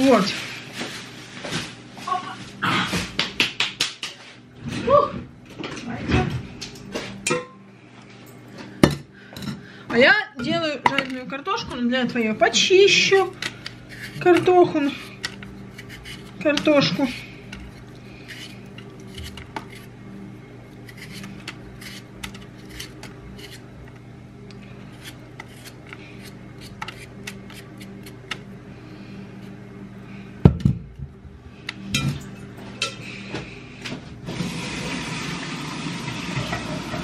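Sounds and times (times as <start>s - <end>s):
peeler scraping potatoes: 10.5s - 20.0s, 20.7s - 28.4s
tap water running into bowl: 34.3s - 37.0s.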